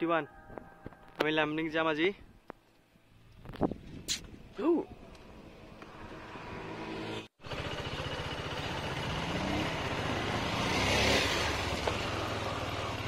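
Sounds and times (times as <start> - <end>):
motorcycle engine accelerating: 5.2 - 13.0.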